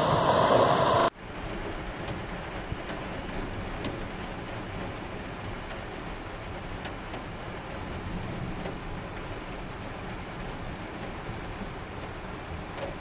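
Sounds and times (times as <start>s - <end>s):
floodwater rushing: 0.0s - 1.1s.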